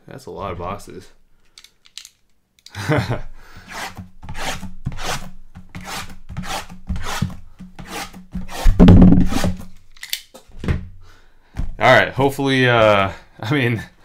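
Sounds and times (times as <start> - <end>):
box cutter slicing cardboard: 3.6 - 9.7.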